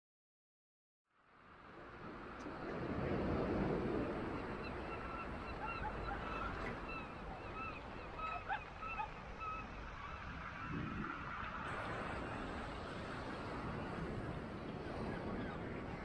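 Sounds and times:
flock of birds calling: 0:04.2 - 0:13.2.

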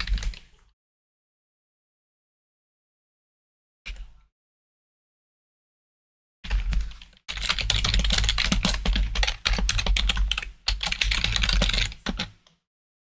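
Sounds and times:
fast typing on keyboard: 0:00.0 - 0:00.4, 0:06.5 - 0:12.4.

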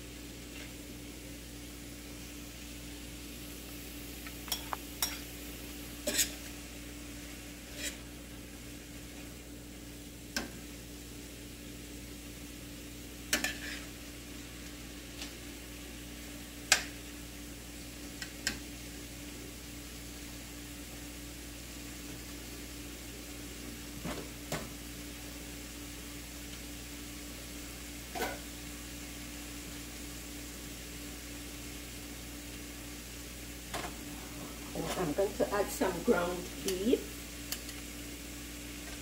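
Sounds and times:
vegetables sizzling: 0:00.0 - 0:39.0
spoon clinking and scraping pan: 0:04.5 - 0:05.3, 0:06.0 - 0:06.5, 0:07.7 - 0:08.0, 0:13.3 - 0:13.9, 0:28.1 - 0:28.4.

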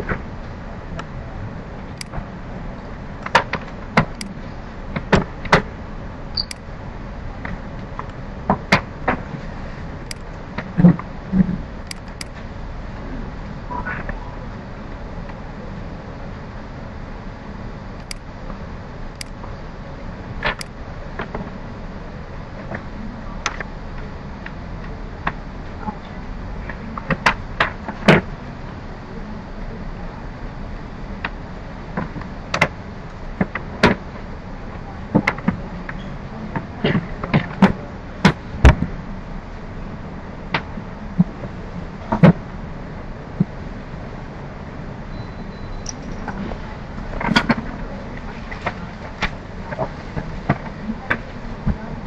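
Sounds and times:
low background rumble: 0:00.0 - 0:52.0
computer mouse clicks: 0:03.2 - 0:04.4, 0:11.8 - 0:12.4, 0:18.0 - 0:18.3, 0:20.4 - 0:20.8
sharp clicks and taps: 0:18.0 - 0:18.3.

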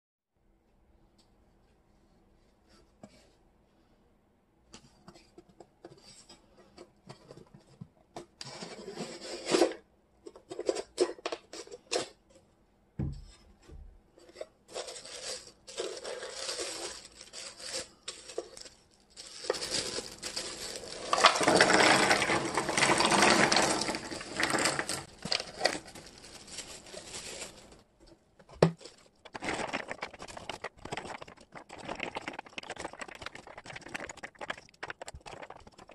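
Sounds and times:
tissue paper rustling: 0:14.7 - 0:27.9, 0:28.8 - 0:33.9.

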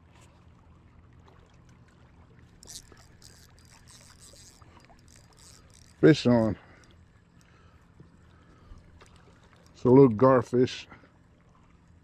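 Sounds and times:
fishing reel whirring: 0:02.3 - 0:08.0.

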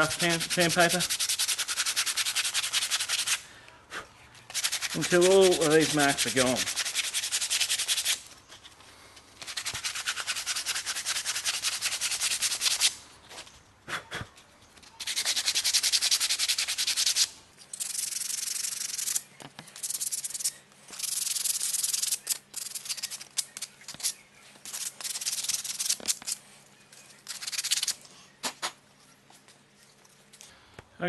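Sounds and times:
sandpaper rubbing wood: 0:00.0 - 0:03.4, 0:04.5 - 0:08.3, 0:09.4 - 0:13.0, 0:15.0 - 0:19.2, 0:19.8 - 0:26.4, 0:27.2 - 0:28.0.

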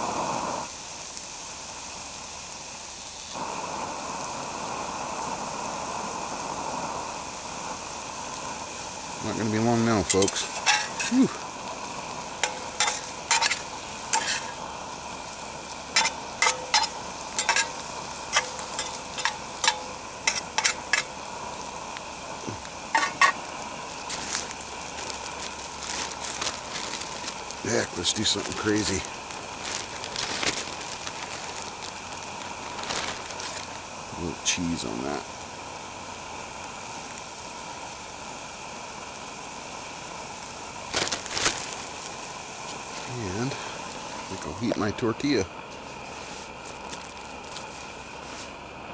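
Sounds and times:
camp stove hissing: 0:00.0 - 0:48.9
eggs sizzling: 0:00.0 - 0:48.9
metal spatula scraping skillet: 0:10.1 - 0:11.2, 0:12.4 - 0:14.6, 0:15.9 - 0:21.1, 0:22.9 - 0:23.4
rustling handling noise: 0:22.5 - 0:33.9, 0:40.9 - 0:45.0, 0:45.7 - 0:48.6.

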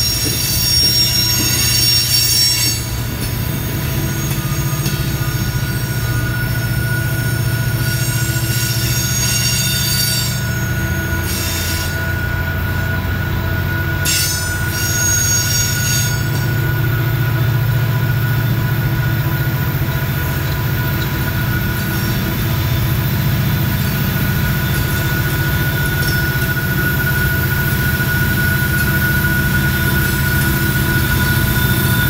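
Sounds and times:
train rumbling on steel trestle: 0:00.0 - 0:32.0
wheel squeal: 0:00.0 - 0:32.0
high whine: 0:10.2 - 0:32.0.

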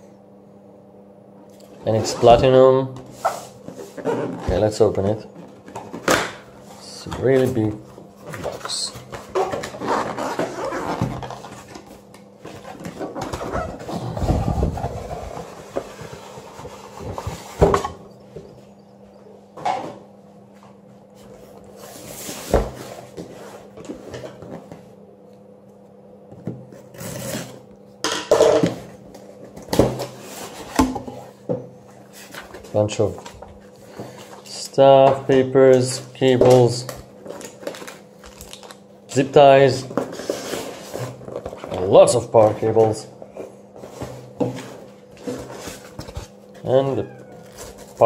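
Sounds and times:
cardboard box scraping and rustling: 0:12.5 - 0:17.8, 0:26.9 - 0:27.6.

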